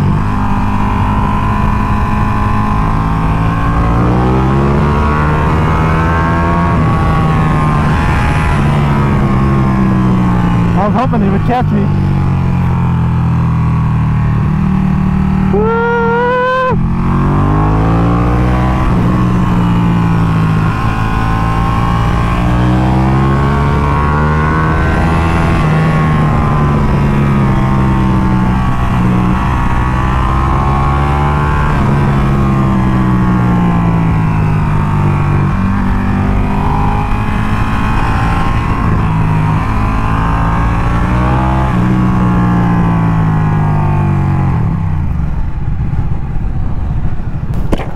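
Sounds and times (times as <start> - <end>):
wind rushing over microphone: 0.0 - 15.7, 16.3 - 47.9
motorcycle engine revving: 0.0 - 45.9.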